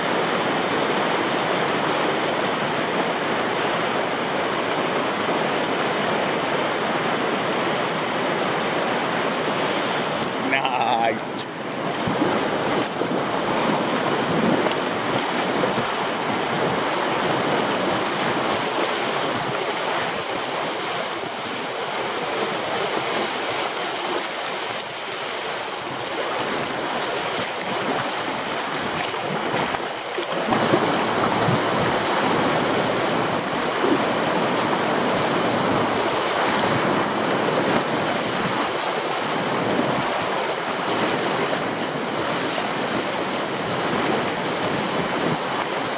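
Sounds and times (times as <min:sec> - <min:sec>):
whitewater rushing: 0:00.0 - 0:45.9.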